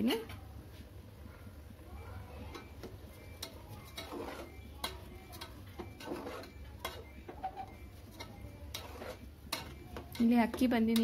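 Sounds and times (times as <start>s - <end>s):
spatula scraping in pot: 2.4s - 11.0s
metal taps on pot: 9.5s - 11.0s.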